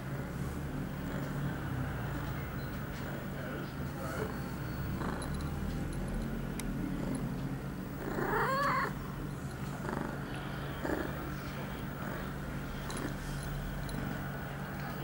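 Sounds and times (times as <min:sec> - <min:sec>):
cat purring: 0:00.6 - 0:15.0
cat yowling: 0:08.0 - 0:09.0.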